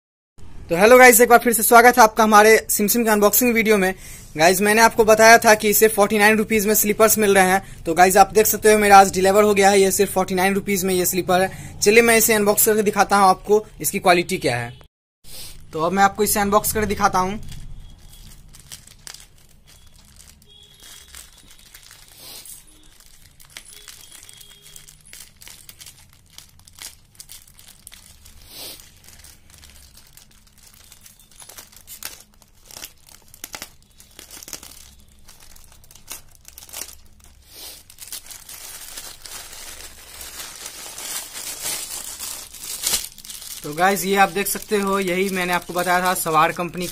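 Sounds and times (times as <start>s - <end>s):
plastic mailer bag crinkling: 16.8s - 46.9s.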